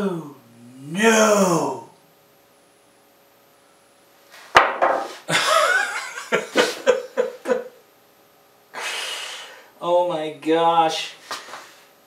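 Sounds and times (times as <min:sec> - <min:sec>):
man groaning: 0:00.0 - 0:01.9
man laughing: 0:05.3 - 0:07.8
breathy exhale: 0:08.8 - 0:09.8.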